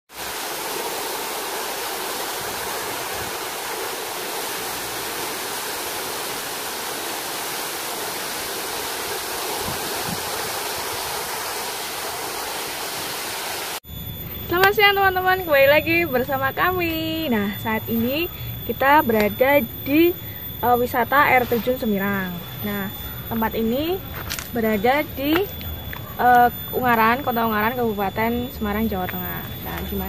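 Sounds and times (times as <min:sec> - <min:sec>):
waterfall rushing: 0:00.1 - 0:13.8.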